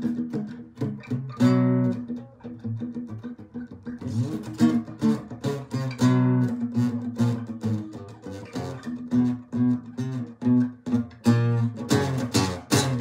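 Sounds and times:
acoustic guitar picking and strumming: 0.0 - 13.0.

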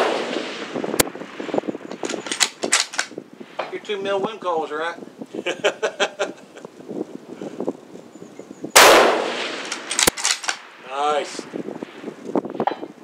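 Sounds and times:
rifle shot: 0.0 - 1.2, 8.8 - 10.7
sharp click: 1.9 - 3.2, 9.6 - 10.6.

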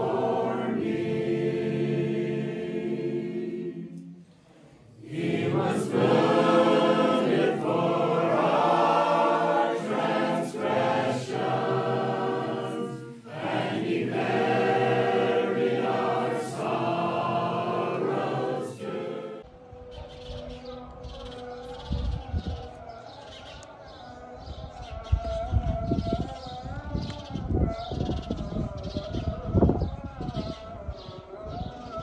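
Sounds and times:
choir singing: 0.0 - 19.4.

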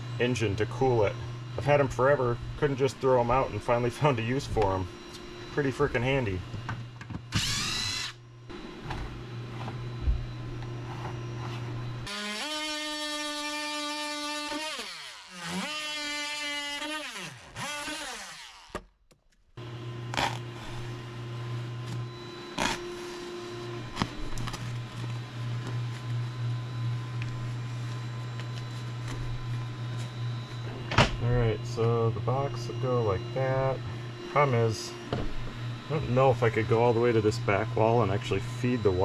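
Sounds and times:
low steady hum: 0.0 - 14.5, 19.6 - 39.0
oscillating multi-tool whining: 7.3 - 8.2, 9.7 - 18.8.

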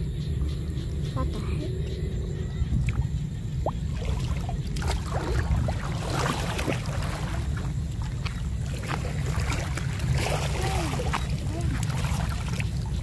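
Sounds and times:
steady low rumble: 0.0 - 13.0
floodwater sloshing around legs: 2.8 - 13.0.

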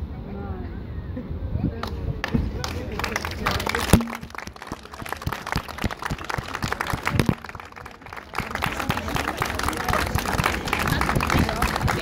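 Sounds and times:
people clapping: 1.8 - 12.0
loud sharp sound: 3.9 - 4.4.

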